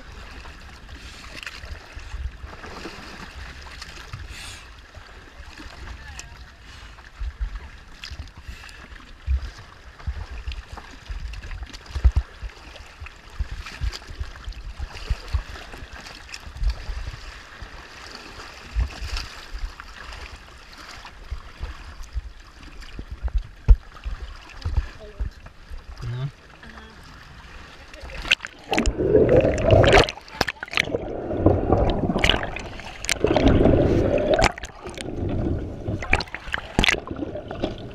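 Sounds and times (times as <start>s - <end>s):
water sloshing and splashing: 0.0s - 37.9s
waves knocking camera: 28.2s - 37.9s.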